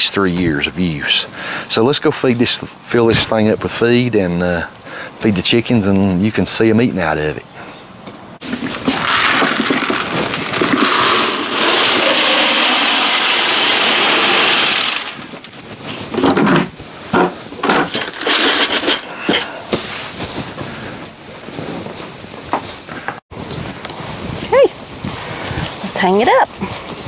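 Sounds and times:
feed pellets pouring into bucket: 8.4 - 15.3
knocks and rustles of bucket: 8.4 - 20.9.

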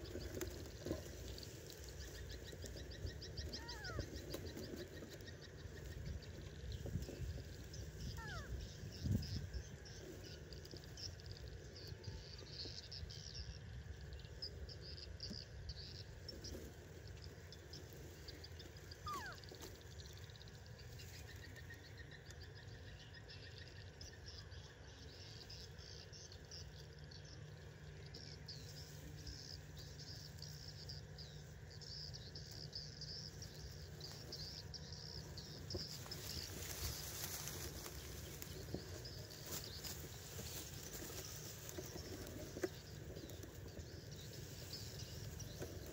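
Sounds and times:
high chirping of small creatures: 0.0 - 13.5, 17.1 - 24.8.

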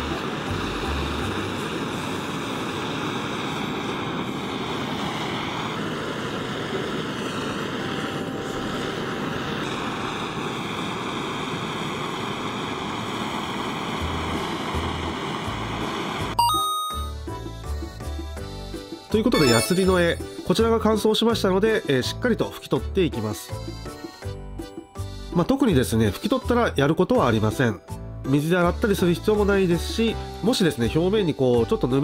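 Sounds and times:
gas torch hissing roar: 0.0 - 16.4.

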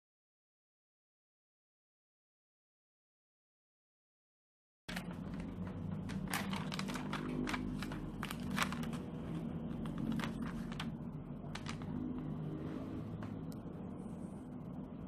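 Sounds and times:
stickers peeling off: 4.9 - 10.9
sticker sheet crinkling and crackling: 4.9 - 12.2
steady low hum: 4.9 - 15.0.

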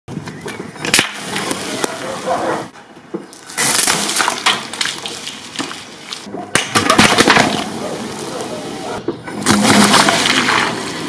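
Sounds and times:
can crunching under tyre: 3.3 - 7.7.

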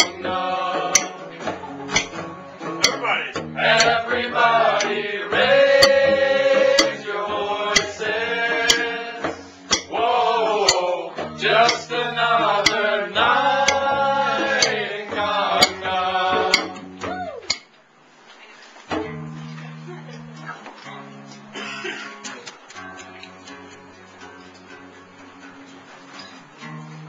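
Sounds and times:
sharp claps keeping time: 0.0 - 17.7
man singing loudly: 9.9 - 16.8.

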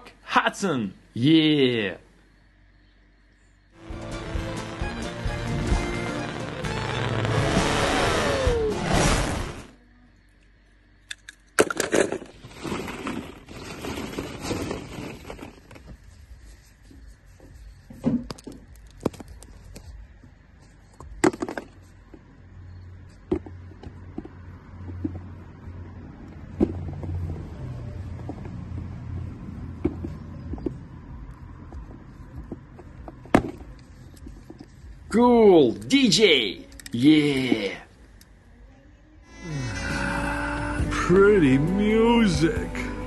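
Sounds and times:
sand scraping and crumbling: 12.3 - 17.7.

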